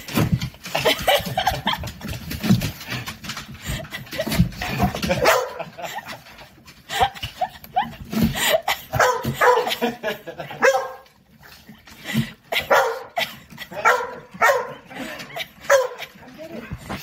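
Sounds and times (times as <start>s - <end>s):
dogs barking: 5.1s - 5.8s, 8.9s - 11.2s, 12.5s - 16.2s.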